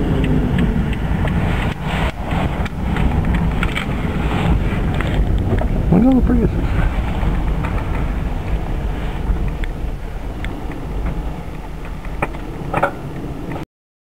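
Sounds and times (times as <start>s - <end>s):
tyre and road noise rumble: 0.0s - 13.7s.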